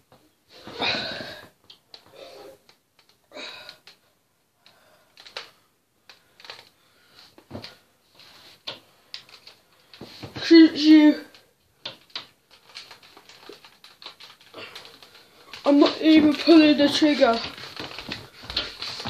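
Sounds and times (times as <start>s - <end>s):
plastic toy being handled: 11.8s - 19.0s.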